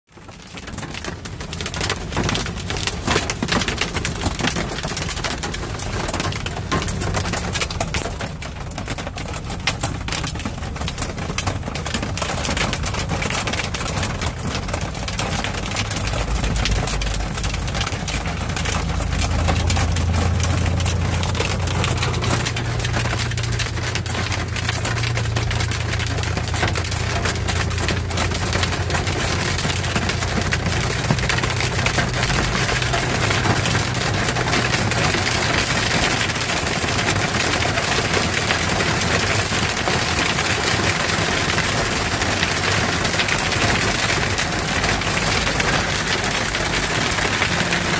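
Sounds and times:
hail pelting a truck cab: 0.1s - 47.9s
road noise: 0.1s - 47.9s
truck engine drone: 3.6s - 38.8s.

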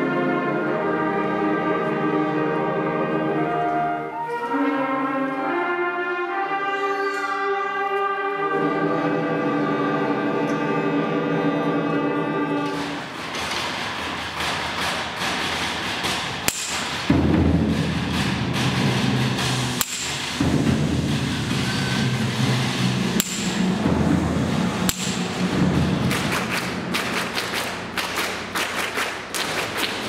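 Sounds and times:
audience applauding: 25.9s - 30.0s.

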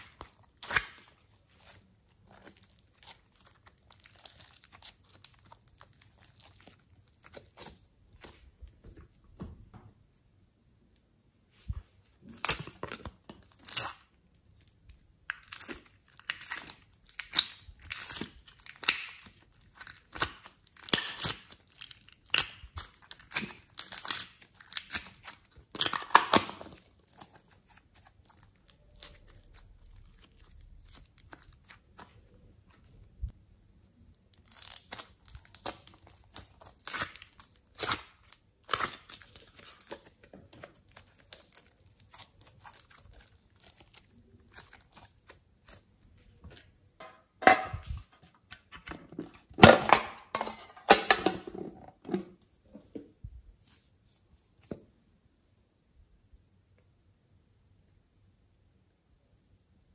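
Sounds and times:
slime squished by hand crackling: 0.0s - 9.3s, 15.2s - 32.4s, 34.2s - 45.9s.

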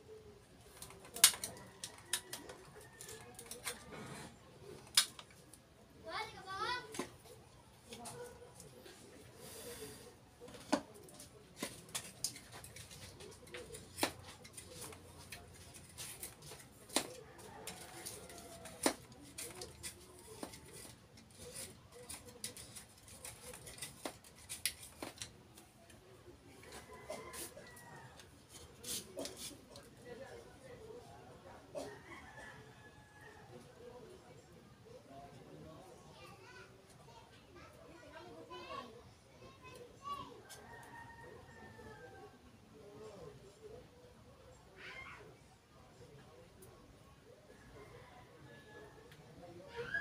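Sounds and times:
knife scraping coconut husk: 11.1s - 25.3s, 27.1s - 30.0s.

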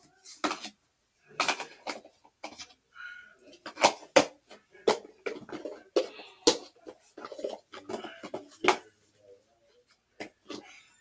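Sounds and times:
plastic containers clattering: 0.0s - 2.8s, 3.4s - 9.0s.

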